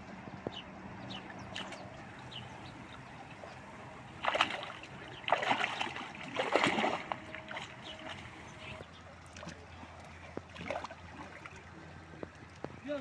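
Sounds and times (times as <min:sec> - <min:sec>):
river water running: 0:00.0 - 0:13.0
hands splashing in water: 0:04.2 - 0:08.2.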